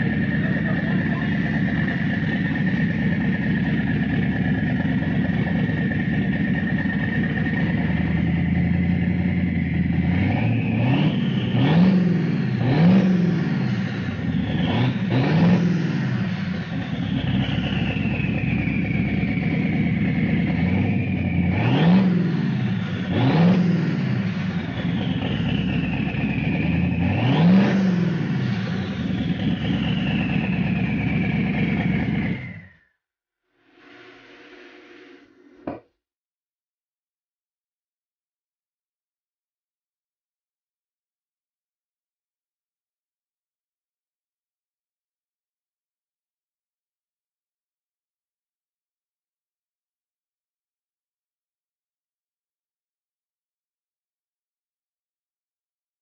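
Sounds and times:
car engine idling and revving: 0.0s - 32.8s
turbo whistle winding down: 5.0s - 33.0s, 33.7s - 35.7s.

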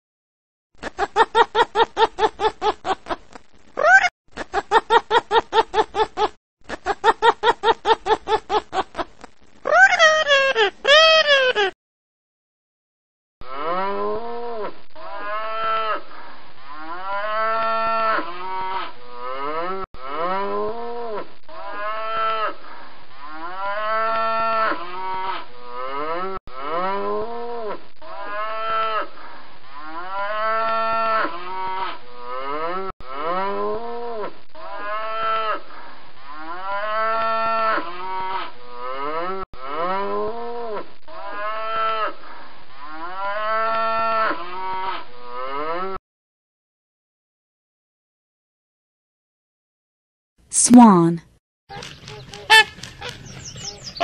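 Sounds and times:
cattle mooing: 13.4s - 20.7s.

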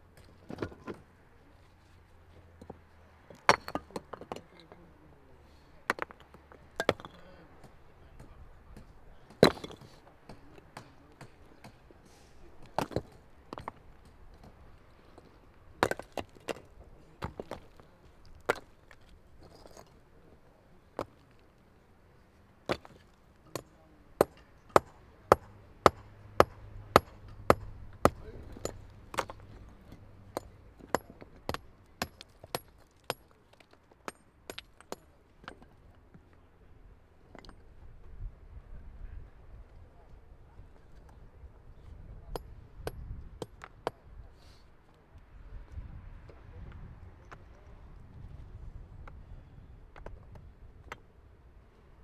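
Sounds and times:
hammer striking stone: 3.4s - 4.4s, 5.9s - 11.8s, 22.7s - 35.8s.

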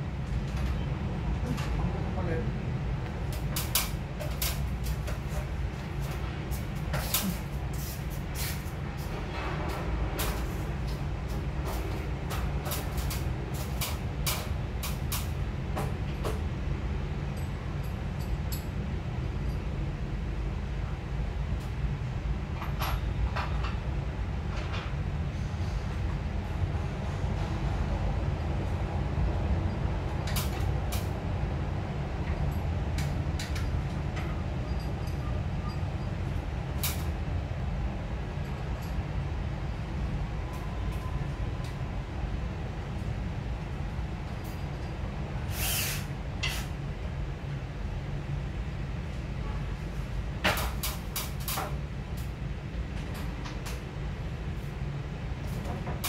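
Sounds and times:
steady low rumble: 0.0s - 22.6s.

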